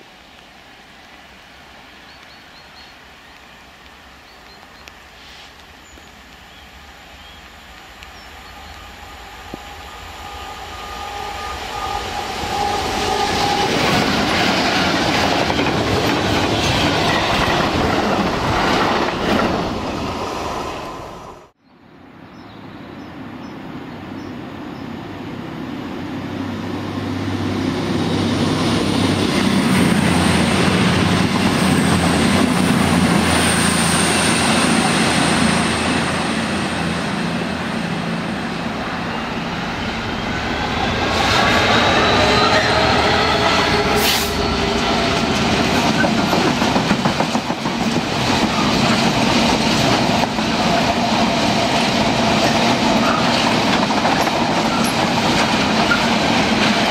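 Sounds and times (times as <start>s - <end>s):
passing train rising whine: 0.0s - 56.9s
diesel locomotive engine: 3.4s - 21.6s, 22.9s - 56.9s
wheels clattering on rails: 44.5s - 56.9s.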